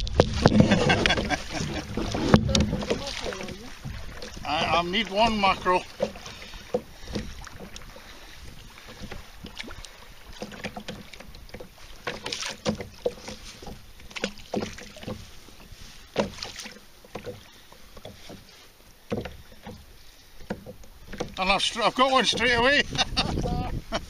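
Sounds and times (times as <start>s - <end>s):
wind rumble on microphone: 0.0s - 4.7s, 22.5s - 24.0s.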